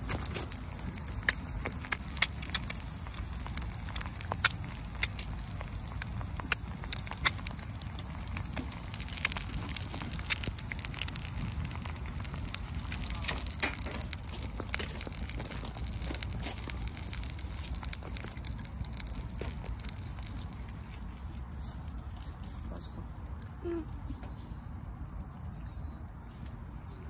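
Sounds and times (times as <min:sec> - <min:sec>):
eggs sizzling in hot oil: 0:00.0 - 0:20.8.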